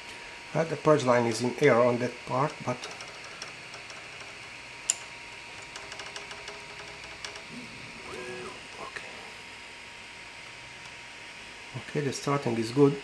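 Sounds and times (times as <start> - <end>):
printer fans whirring: 0.0 - 13.0.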